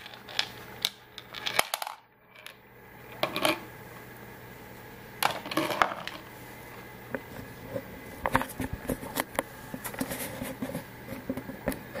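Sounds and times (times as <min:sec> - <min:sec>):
ball bearings clattering on plastic: 0:00.0 - 0:02.6, 0:05.2 - 0:06.2.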